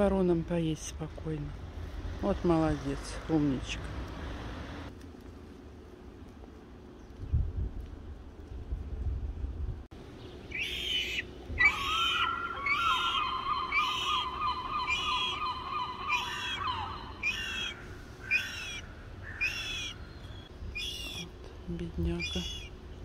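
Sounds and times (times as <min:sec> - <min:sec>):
birds calling: 0:10.0 - 0:23.0.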